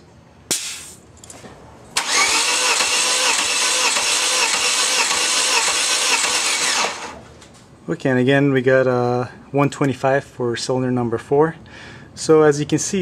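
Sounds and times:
engine starter cranking: 2.0 - 7.2.

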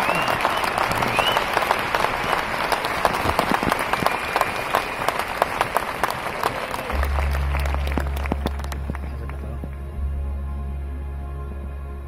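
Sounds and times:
audience clapping: 0.0 - 9.9
deep low drone: 6.6 - 12.0.

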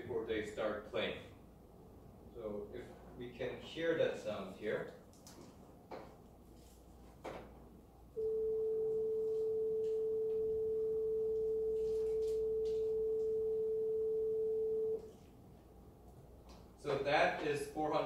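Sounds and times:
pure sine tone: 8.2 - 15.1.

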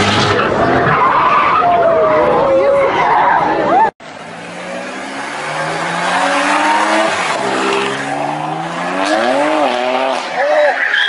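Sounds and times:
car engine revving: 4.0 - 10.4.

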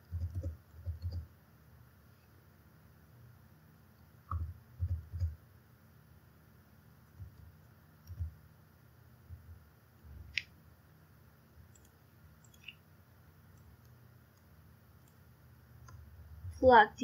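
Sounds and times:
computer keyboard and mouse clicks: 0.0 - 1.3, 4.3 - 5.4, 7.2 - 8.4, 11.7 - 12.8, 15.8 - 16.0.

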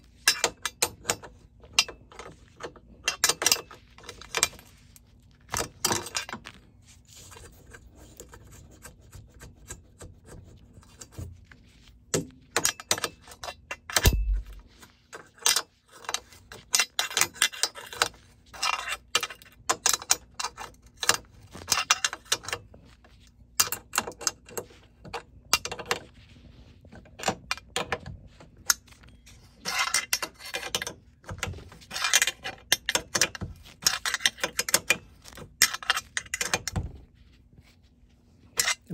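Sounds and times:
dull thump: 14.1 - 14.7.

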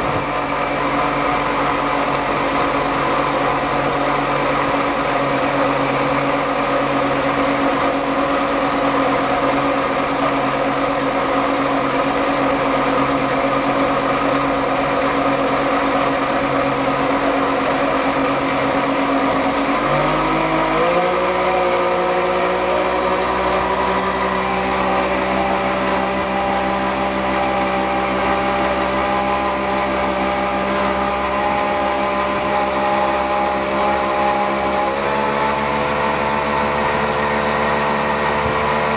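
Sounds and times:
rush of wind: 0.0 - 13.4
boat wake: 0.0 - 38.9
outboard motor running at speed: 0.0 - 38.9.

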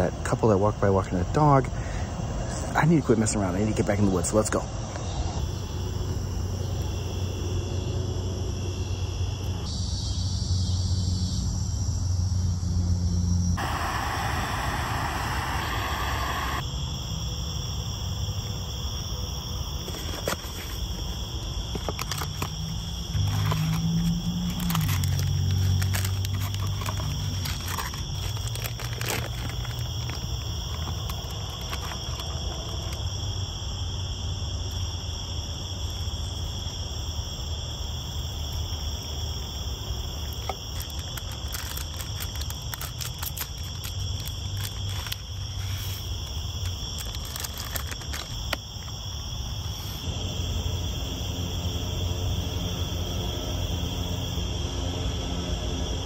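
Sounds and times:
night insects chirring: 0.0 - 56.0
foil food pouch crinkling: 21.7 - 33.0, 40.2 - 48.9.

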